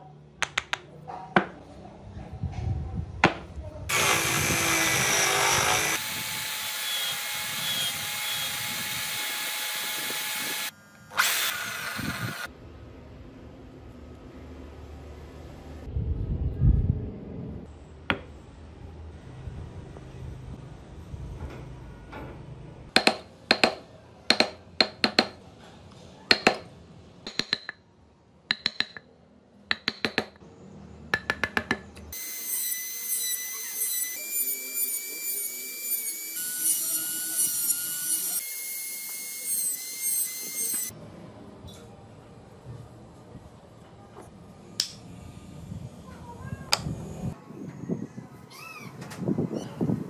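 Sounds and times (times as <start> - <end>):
rotary tool whining on wood: 3.9 - 12.5.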